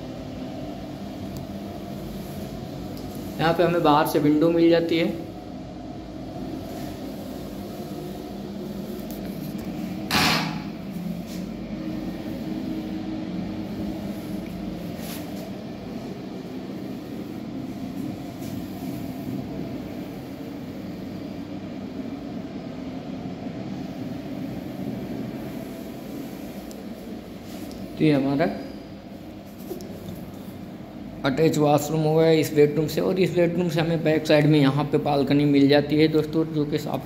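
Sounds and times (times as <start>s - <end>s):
steady low hum: 0.0s - 37.0s
sharp knock: 10.1s - 10.7s.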